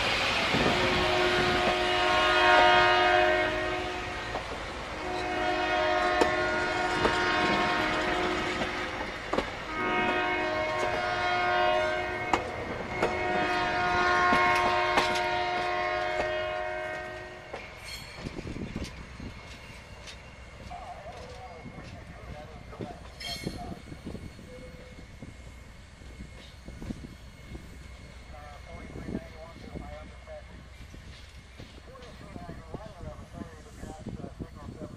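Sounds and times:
locomotive air horn blasts: 0.5 - 4.4, 5.0 - 9.0, 9.7 - 17.6
train wheels clicking over rail joints: 6.0 - 11.0, 12.3 - 28.3, 29.1 - 34.1.

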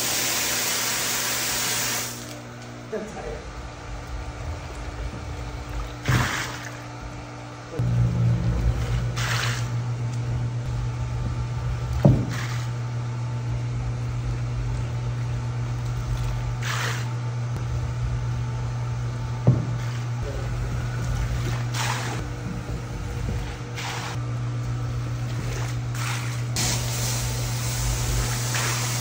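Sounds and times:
electric pump humming: 0.0 - 29.0
water splashing: 4.2 - 6.9, 20.9 - 22.2, 25.2 - 27.2.

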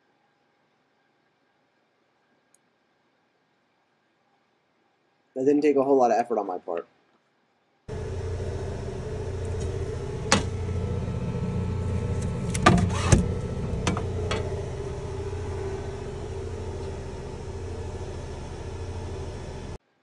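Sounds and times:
printer fan hum: 7.9 - 19.8.

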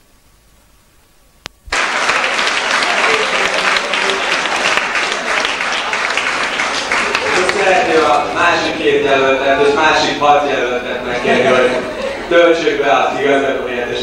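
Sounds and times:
crowd applauding: 1.7 - 8.9.

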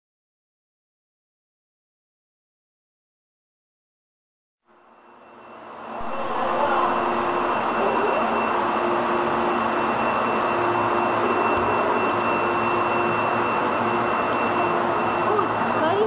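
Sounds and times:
plotter cutter mechanical whir: 4.8 - 16.0.

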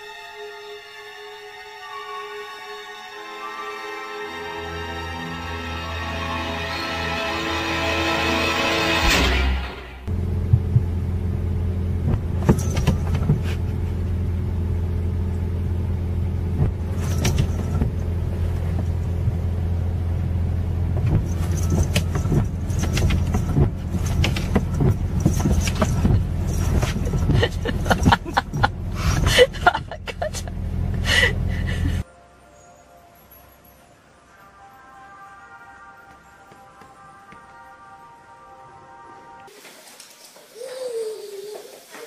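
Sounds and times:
car engine and road drone: 8.2 - 32.0
clicks and knocks: 12.1 - 13.6.

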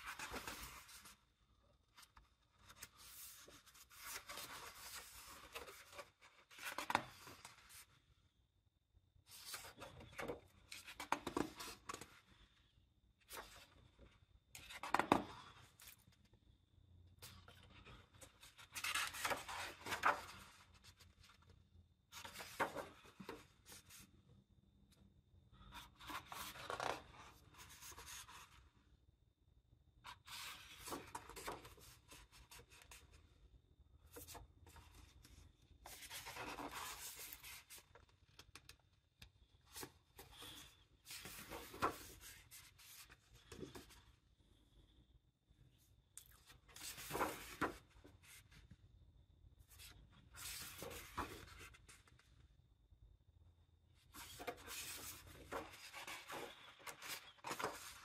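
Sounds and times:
book pages turning: 2.0 - 7.9, 17.2 - 21.4, 22.1 - 23.9, 25.6 - 28.6, 34.2 - 38.8, 39.7 - 44.0, 46.4 - 48.5, 49.8 - 52.2, 54.1 - 58.0.

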